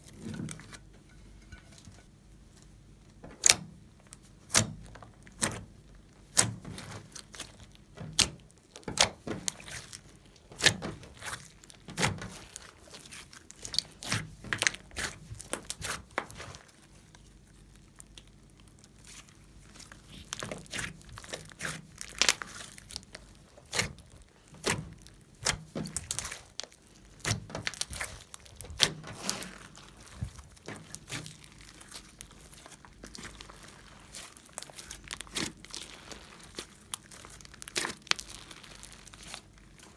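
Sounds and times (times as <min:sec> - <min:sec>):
slime squeezed by hand: 0:09.5 - 0:39.9.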